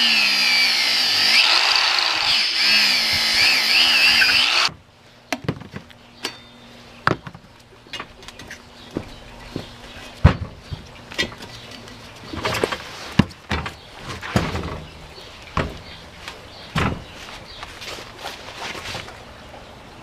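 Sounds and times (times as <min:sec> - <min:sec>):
angle grinder cutting rubber: 0:00.0 - 0:04.7.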